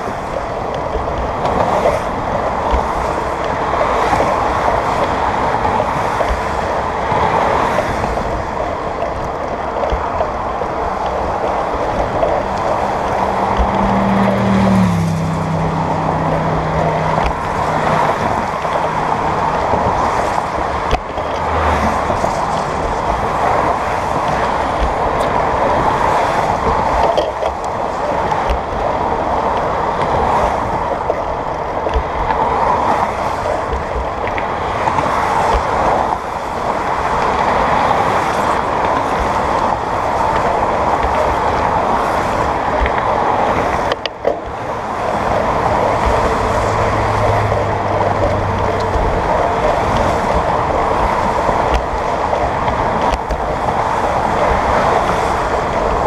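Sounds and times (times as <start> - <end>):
road traffic passing: 0.0 - 56.0
wind noise on microphone: 0.0 - 56.0
passing vehicle low hum: 9.5 - 33.8, 37.9 - 56.0.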